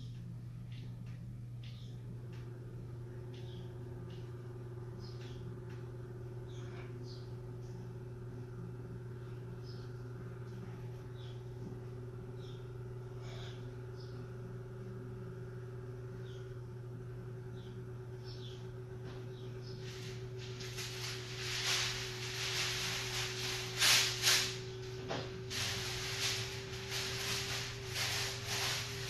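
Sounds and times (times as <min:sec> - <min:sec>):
low hum: 0:00.0 - 0:29.0.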